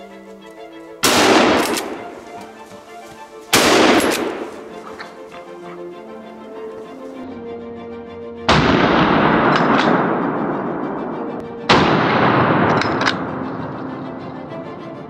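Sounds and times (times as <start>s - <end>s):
background music: 0.0s - 15.0s
rifle shots with echo: 1.0s - 5.4s, 8.5s - 10.3s, 11.7s - 13.4s.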